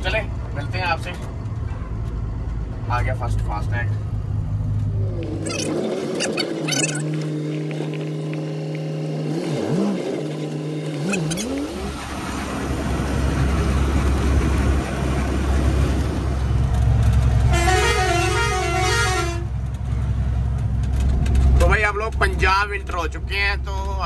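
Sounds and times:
low road rumble: 0.0s - 24.0s
truck diesel engine: 0.0s - 24.0s
musical horn warbling tune: 17.5s - 19.5s.

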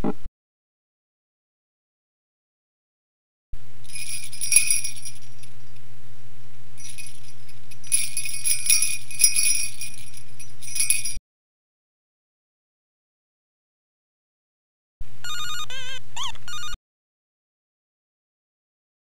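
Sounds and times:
steady low hum: 3.6s - 11.2s
metallic jingling: 3.9s - 5.6s, 6.8s - 11.2s.

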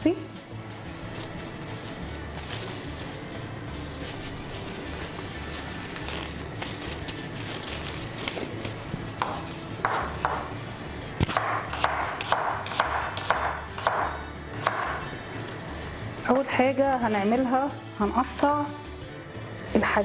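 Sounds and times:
plastic gloves rustling: 0.2s - 9.8s.

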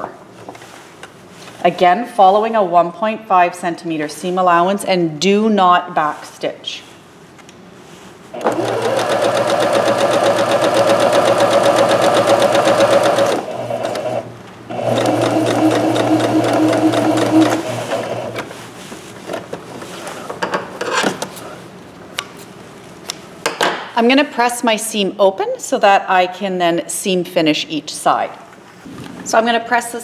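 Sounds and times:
electric sewing machine running: 8.4s - 18.4s.

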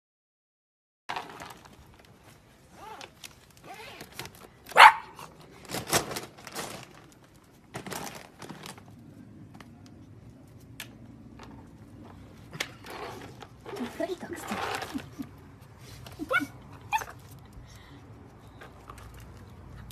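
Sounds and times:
puppy yipping and barking: 4.7s - 5.2s, 16.2s - 17.2s.

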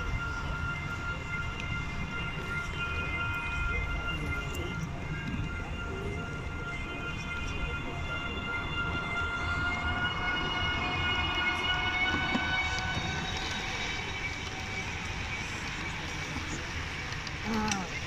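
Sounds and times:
exhibition hall background noise: 0.0s - 18.0s
model train whine: 0.0s - 18.0s.

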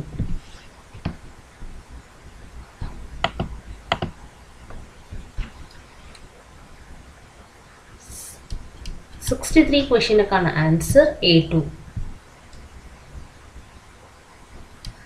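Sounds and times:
computer mouse clicks: 3.2s - 4.1s.

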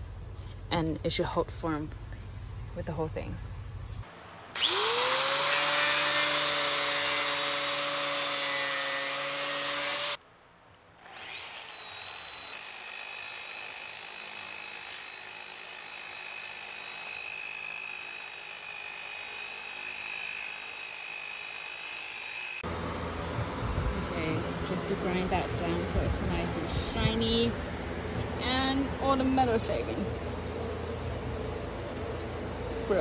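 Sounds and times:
angle grinder grinding metal: 4.6s - 10.2s, 11.0s - 22.6s.

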